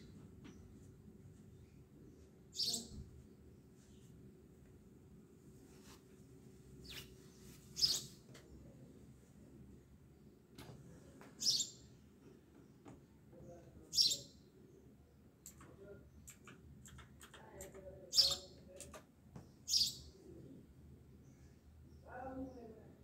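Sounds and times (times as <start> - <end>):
bird chirping: 2.1 - 3.0, 6.8 - 8.2, 11.4 - 11.9, 13.8 - 14.8, 18.1 - 18.6, 19.4 - 20.2.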